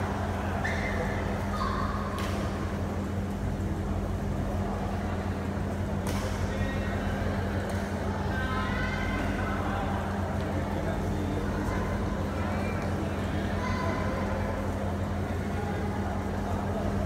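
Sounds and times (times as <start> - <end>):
crowd murmur: 0.0 - 17.0
racket hitting shuttlecock: 2.1 - 2.6, 6.0 - 6.4.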